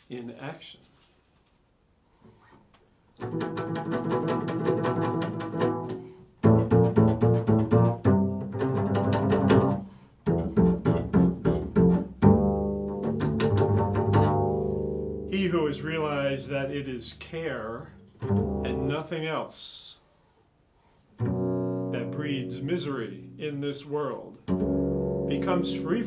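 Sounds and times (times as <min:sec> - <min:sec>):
double bass playing: 0:03.2 - 0:19.2, 0:21.2 - 0:26.0.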